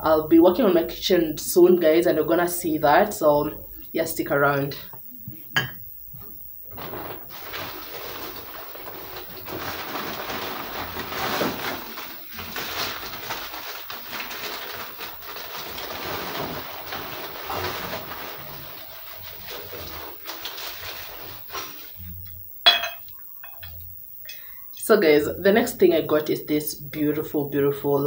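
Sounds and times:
wrapping material crinkling: 6.7s - 22.0s.

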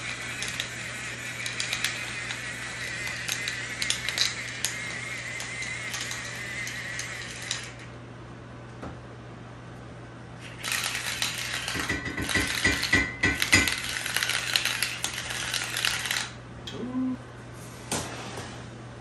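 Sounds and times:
pepper mill grinding: 0.0s - 7.8s, 10.4s - 16.4s.

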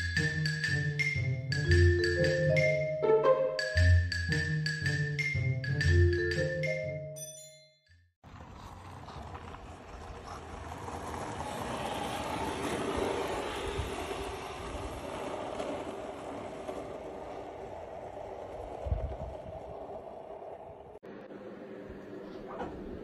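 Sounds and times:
skateboard wheels rolling on tiles: 8.2s - 21.0s.

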